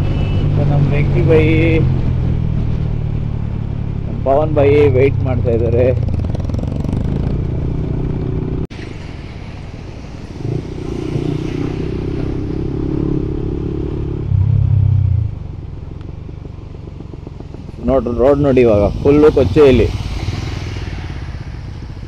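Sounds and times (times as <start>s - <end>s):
motorcycle engine running: 10.5s - 22.0s.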